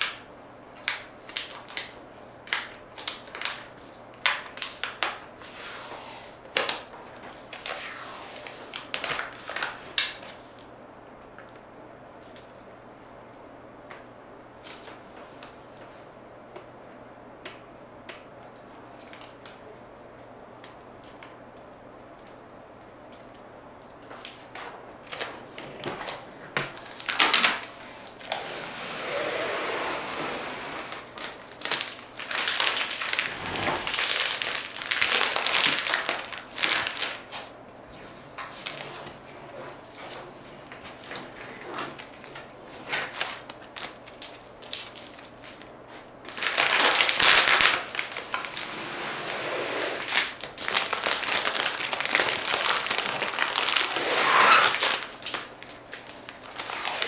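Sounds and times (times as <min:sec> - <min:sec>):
protective covering crinkling: 0:24.2 - 0:45.6, 0:46.2 - 0:49.4, 0:50.0 - 0:57.0.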